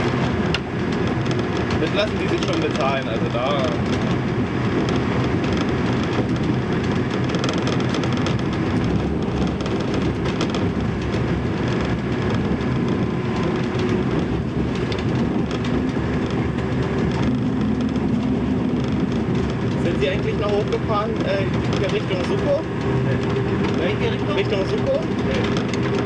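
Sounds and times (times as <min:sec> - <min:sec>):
train engine and wheels drone: 0:00.0 - 0:26.0
wheels clicking on rail: 0:00.0 - 0:26.0.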